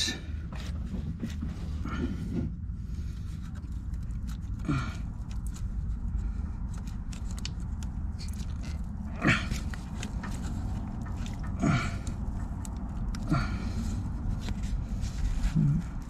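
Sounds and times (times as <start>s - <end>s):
low background rumble: 0.0s - 16.0s
plastic connector clicks and scrapes: 6.6s - 8.9s.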